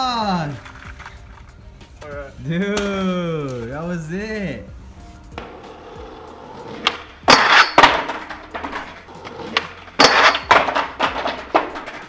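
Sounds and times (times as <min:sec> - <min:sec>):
skateboard clattering on concrete: 0:05.4 - 0:12.0
skateboard grinding metal rail: 0:05.4 - 0:12.0.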